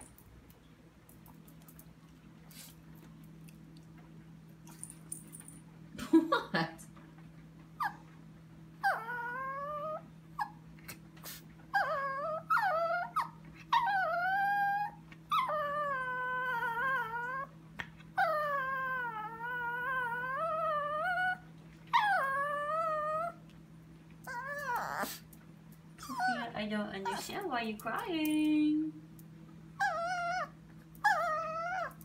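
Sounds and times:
low steady hum: 0.0 - 32.0
dog whimpering: 7.8 - 8.1, 8.8 - 10.6, 11.7 - 17.5, 18.2 - 23.4, 24.2 - 25.2, 26.0 - 27.3, 29.8 - 32.0.

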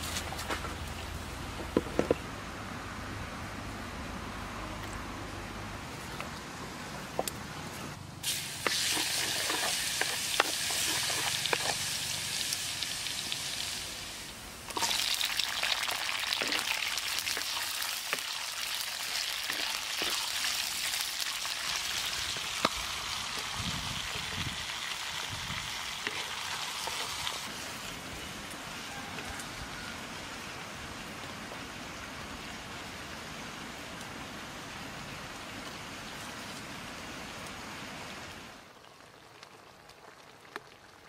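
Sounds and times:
hot oil sizzling and popping: 8.2 - 28.8, 38.6 - 41.0.

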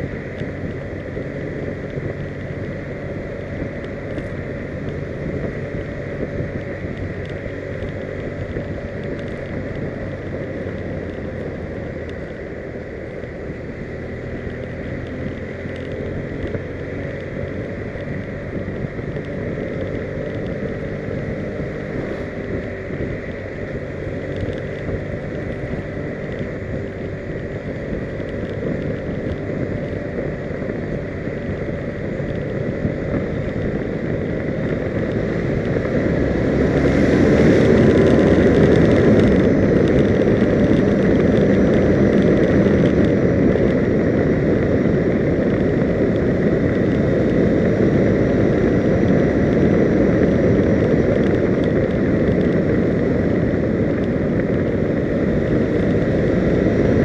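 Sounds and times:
vehicle engine and road noise: 0.0 - 57.0
wind on microphone: 13.7 - 57.0.

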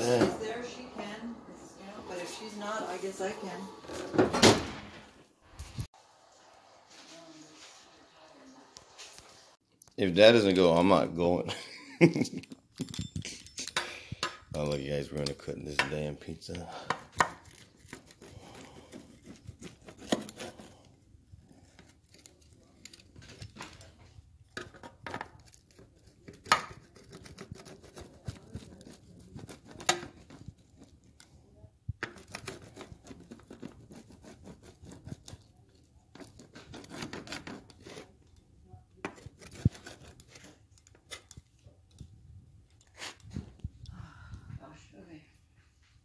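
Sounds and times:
blade crunching through pizza crust: 17.0 - 24.0, 25.3 - 31.2, 32.1 - 38.2.

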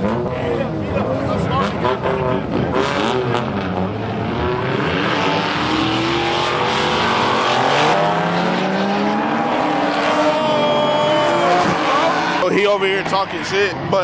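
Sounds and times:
car engines revving: 0.0 - 14.0
steady rush of noise: 3.9 - 14.0.

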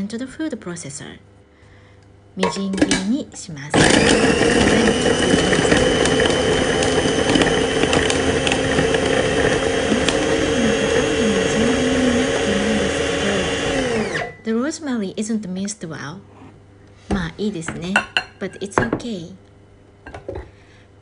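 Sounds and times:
food processor motor whine: 3.7 - 14.4.

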